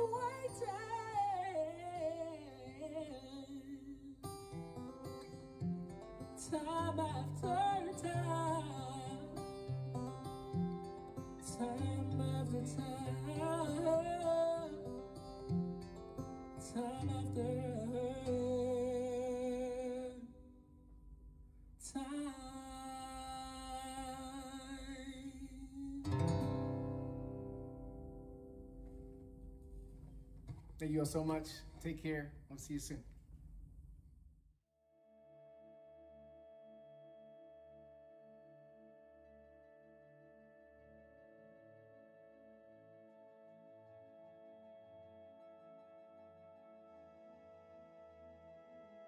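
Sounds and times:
acoustic guitar: 0.0 - 32.2, 35.0 - 49.0
man singing: 6.4 - 9.4, 11.4 - 15.0, 16.6 - 20.3, 21.8 - 26.2.

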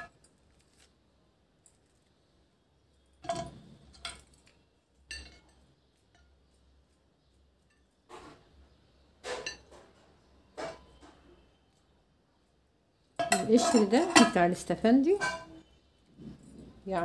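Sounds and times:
knife clinking on glass dish: 5.1 - 6.3, 15.1 - 15.6.

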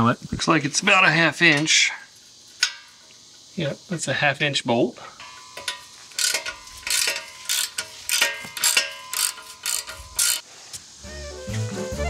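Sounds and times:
ratchet pawl clicking: 5.2 - 10.4.

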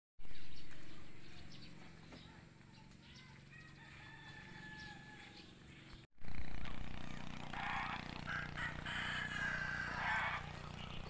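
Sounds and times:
rooster crowing: 3.5 - 5.4, 7.5 - 10.7.

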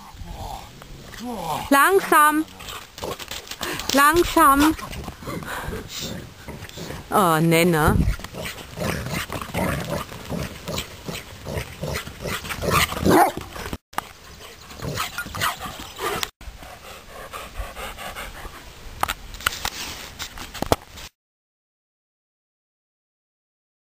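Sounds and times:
dog panting: 14.3 - 18.6.

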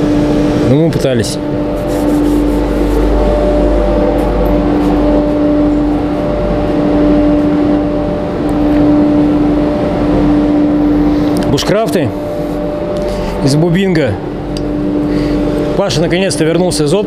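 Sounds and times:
even rushing noise: 0.0 - 16.4
electric machine humming: 0.0 - 17.0.

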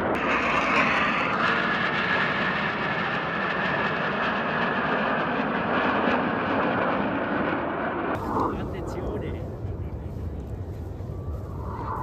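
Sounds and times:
jet engines roaring: 0.0 - 12.0
faint high whine: 7.6 - 12.0.

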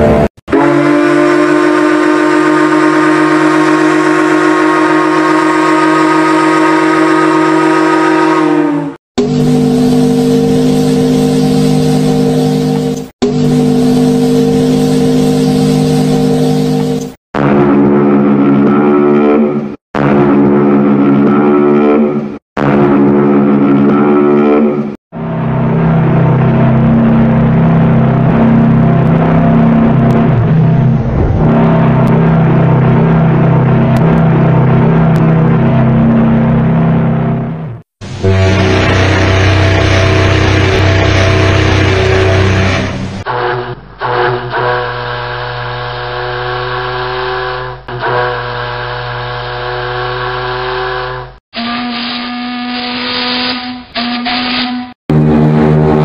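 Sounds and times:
deep ship's whistle blast: 0.0 - 19.5, 38.1 - 56.0.

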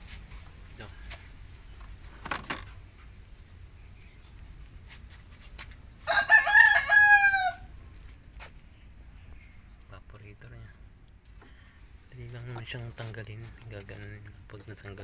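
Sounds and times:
rooster crowing: 6.0 - 7.7.

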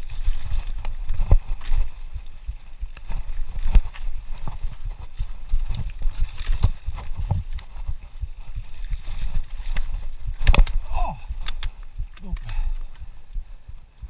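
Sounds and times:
steady low rumble: 0.0 - 14.0
mountain bike knocks and rattles: 9.0 - 12.6.

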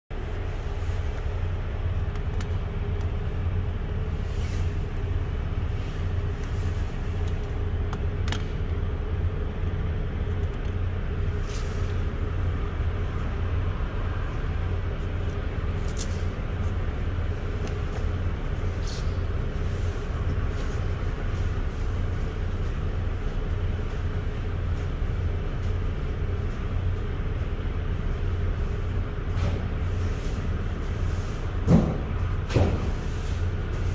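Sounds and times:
low engine drone: 0.1 - 33.9.

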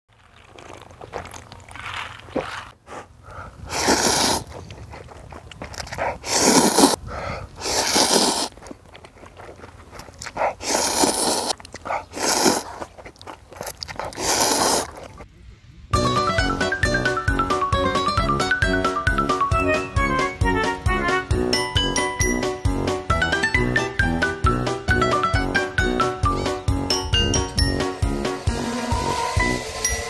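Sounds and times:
noisy slurping of noodles: 0.1 - 2.5, 3.6 - 15.2
chewing and crunching: 0.1 - 15.3.

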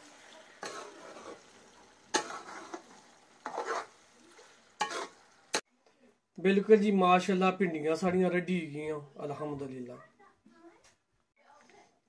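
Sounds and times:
faint frying sizzle: 0.0 - 5.6
spoon scraping a pan: 0.6 - 5.6.

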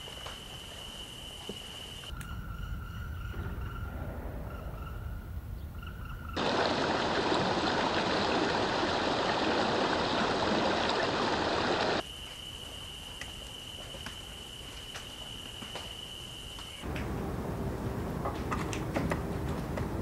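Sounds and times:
stream trickling over rocks: 6.4 - 12.0.

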